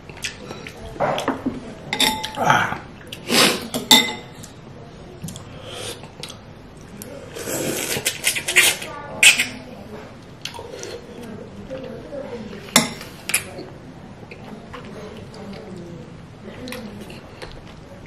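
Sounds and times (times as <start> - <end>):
utensils clinking on ceramic bowl: 1.9 - 2.4
slurping and eating: 7.2 - 9.6.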